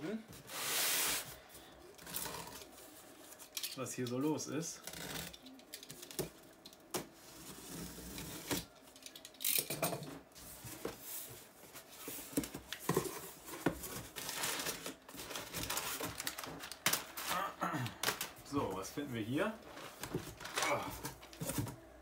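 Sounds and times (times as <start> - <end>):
packing paper rustling: 10.5 - 21.8.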